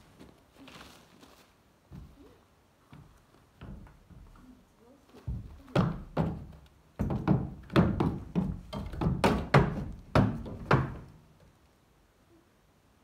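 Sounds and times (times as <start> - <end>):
hooves thudding on wooden ramp: 1.9 - 11.4.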